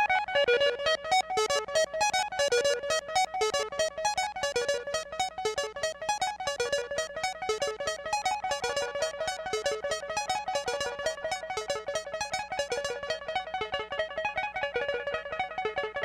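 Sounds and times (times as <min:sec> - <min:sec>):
synth notes looping melody: 0:01.1 - 0:13.6.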